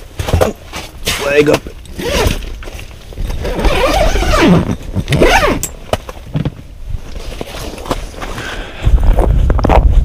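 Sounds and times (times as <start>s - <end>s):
nylon fabric rustling and scraping: 0.0s - 8.4s
camera handling rumble: 1.8s - 10.0s.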